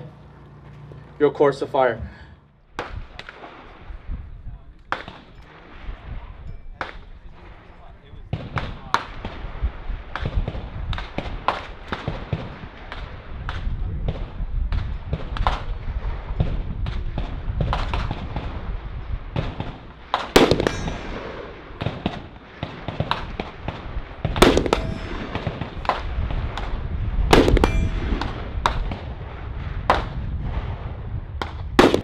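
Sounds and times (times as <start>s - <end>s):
fainter distant gunshots: 4.8s - 32.0s
loud rifle shots with echo: 4.9s - 6.2s, 8.3s - 32.0s.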